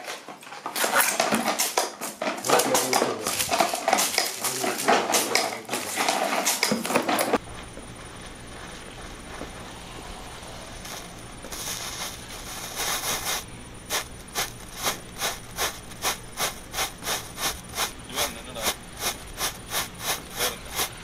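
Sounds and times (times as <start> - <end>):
firecracker fuse hissing: 7.4 - 21.0.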